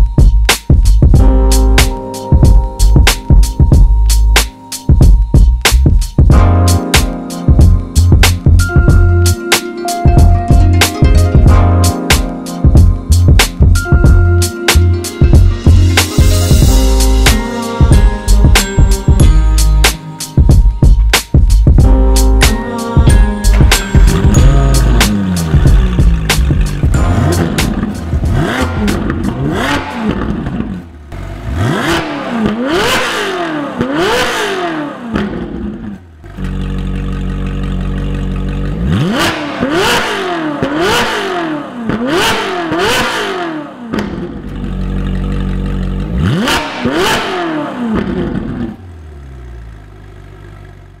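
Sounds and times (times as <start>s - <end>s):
car engine idling: 23.1s - 32.9s, 35.1s - 41.0s, 44.0s - 51.0s
car engine revving: 23.1s - 51.0s.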